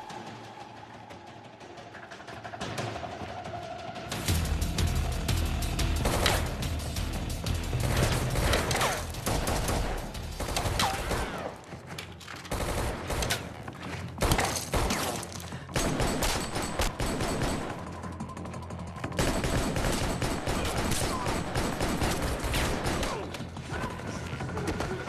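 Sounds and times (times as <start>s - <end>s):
rapid gunfire bursts: 5.9s - 11.8s, 12.5s - 13.6s, 14.2s - 18.2s, 19.0s - 23.6s.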